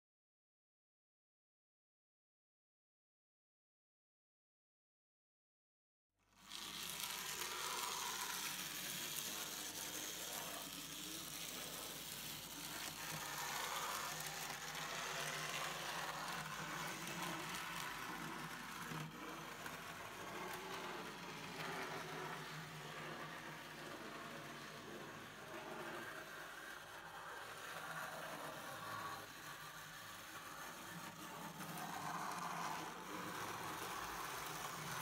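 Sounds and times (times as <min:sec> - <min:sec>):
model trains whirring on track: 0:06.3 - 0:35.0.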